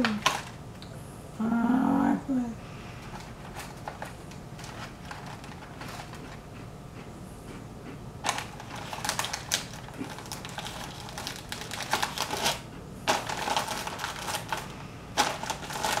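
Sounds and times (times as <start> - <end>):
plastic packaging crinkling: 0.0 - 0.6, 3.0 - 6.4, 8.2 - 16.0.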